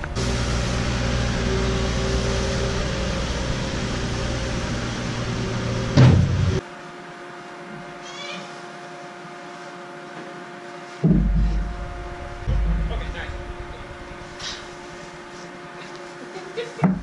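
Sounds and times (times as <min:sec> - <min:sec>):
loader engine running: 0:00.0 - 0:06.6, 0:11.0 - 0:16.6
low steady hum: 0:00.0 - 0:08.0, 0:11.0 - 0:17.0
bucket dumping sawdust: 0:00.1 - 0:06.6.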